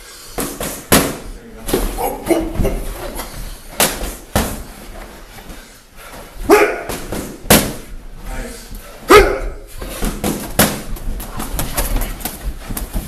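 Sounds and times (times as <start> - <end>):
boxing gloves thumping: 0.4 - 4.8, 6.4 - 7.9, 9.1 - 13.0.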